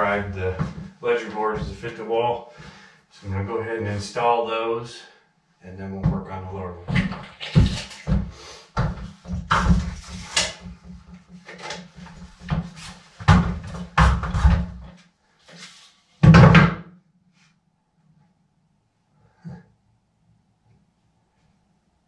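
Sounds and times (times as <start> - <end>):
wooden boards knocking and clattering: 6.9 - 14.9, 16.2 - 16.9.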